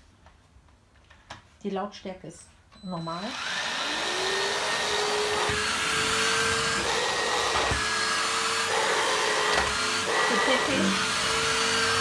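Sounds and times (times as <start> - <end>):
vacuum cleaner running: 3.1 - 12.0.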